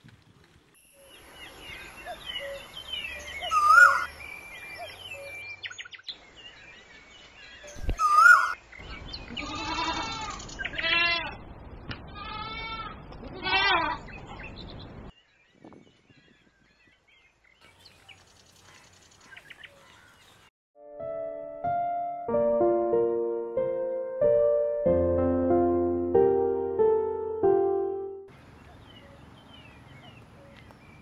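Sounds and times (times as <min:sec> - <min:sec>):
birds chirping: 0:00.8 - 0:12.0, 0:13.8 - 0:20.5, 0:28.3 - 0:31.0
goats bleating: 0:09.4 - 0:11.4, 0:12.1 - 0:14.0.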